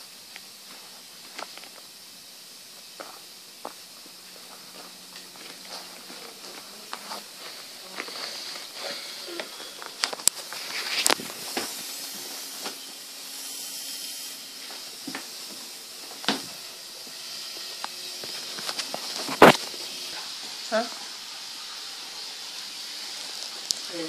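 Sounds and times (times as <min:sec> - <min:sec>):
steady hiss: 0:00.0 - 0:24.0.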